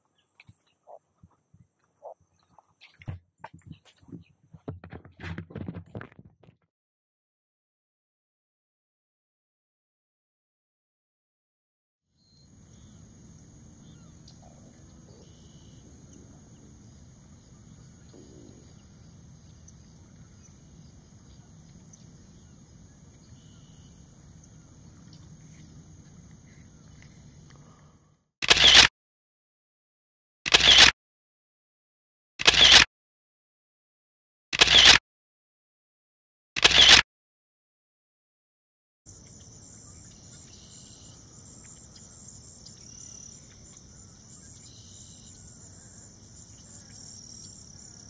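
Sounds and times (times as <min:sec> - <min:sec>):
camera shutter releases: 0:28.4 - 0:28.9, 0:30.5 - 0:30.9, 0:32.4 - 0:32.9, 0:34.6 - 0:35.0, 0:36.6 - 0:37.0.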